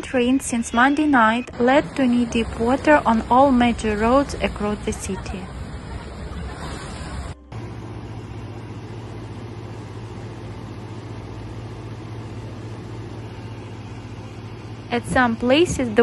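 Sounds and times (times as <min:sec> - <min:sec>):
engine running low hum: 0:00.0 - 0:16.0
vehicle splashing through water: 0:01.5 - 0:09.6.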